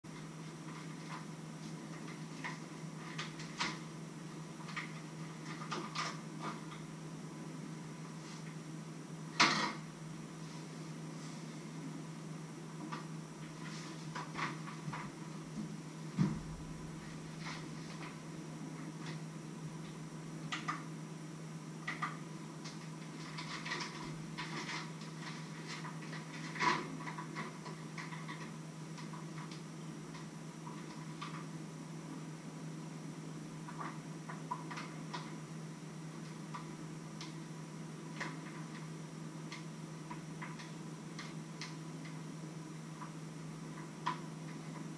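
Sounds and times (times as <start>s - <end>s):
low hum: 14.9s - 20.3s.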